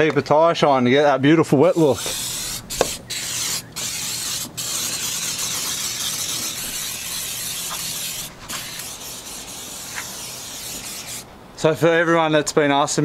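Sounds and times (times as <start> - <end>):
aerosol spray can hissing: 1.7 - 11.3.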